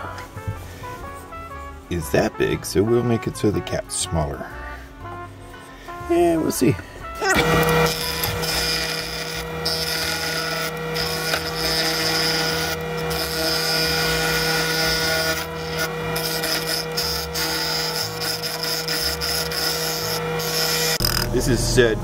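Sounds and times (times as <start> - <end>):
chisel cutting spinning wood: 7.2 - 22.0
wood lathe motor hum: 7.2 - 22.0.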